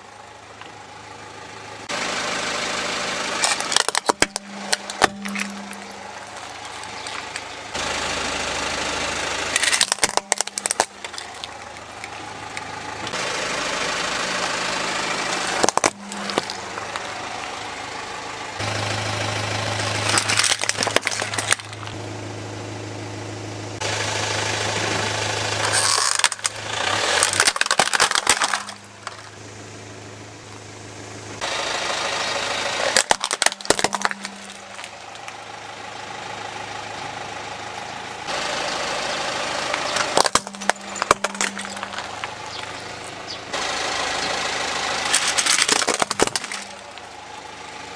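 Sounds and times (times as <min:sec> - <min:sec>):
car engine idling: 0:00.0 - 0:47.9
plastic toys cracking under tyre: 0:03.4 - 0:07.5, 0:09.5 - 0:12.7, 0:15.3 - 0:17.2, 0:20.0 - 0:22.0, 0:25.6 - 0:29.3, 0:32.8 - 0:35.4, 0:39.7 - 0:42.8, 0:45.0 - 0:47.1.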